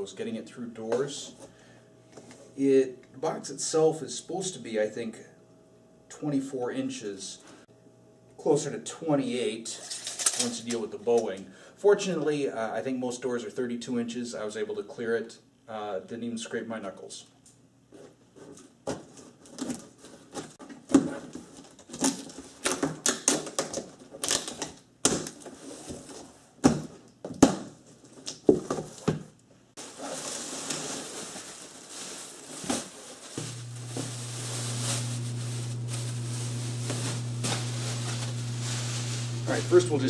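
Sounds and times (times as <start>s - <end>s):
steady low hum: 33.3s - 40.0s.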